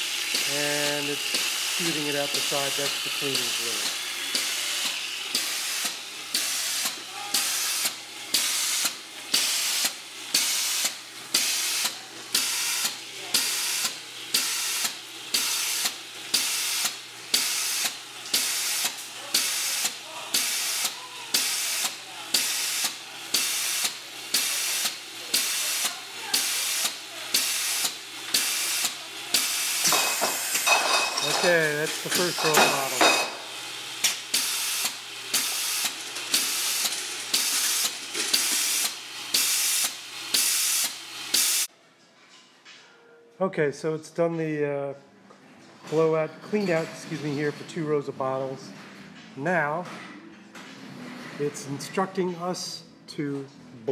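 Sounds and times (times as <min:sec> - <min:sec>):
rhythmic spraying hiss: 0:00.0 - 0:41.7.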